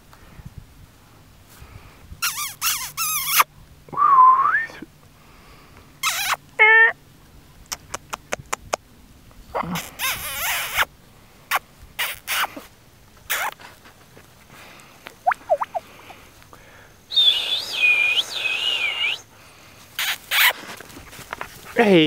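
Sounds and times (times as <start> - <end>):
puppies squealing and yipping: 2.2 - 3.5, 6.0 - 6.4, 15.2 - 15.8.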